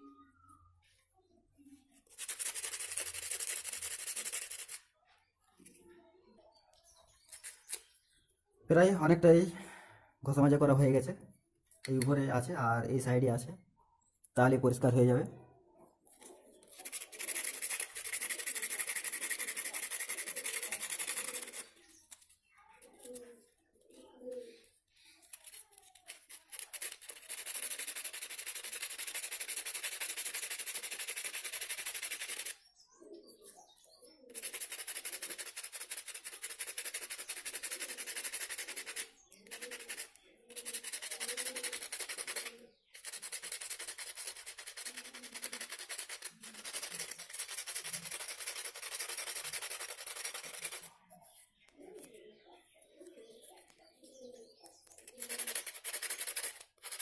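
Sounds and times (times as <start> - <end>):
sandpaper scraping on metal: 2.1 - 4.8, 16.6 - 21.7, 25.3 - 32.6, 34.3 - 50.9, 55.0 - 57.0.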